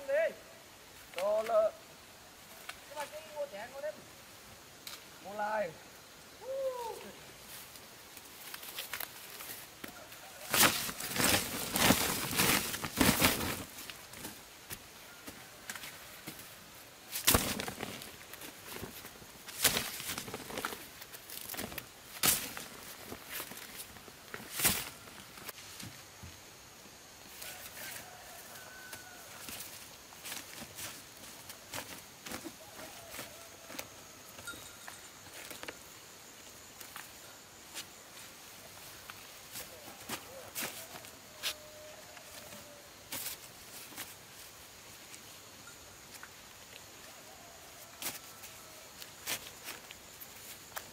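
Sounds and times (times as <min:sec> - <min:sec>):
corn ears rustling and knocking: 0:07.4 - 0:26.6, 0:27.3 - 0:45.5, 0:47.8 - 0:50.9
plastic sack rustling: 0:10.4 - 0:14.4, 0:17.2 - 0:25.5.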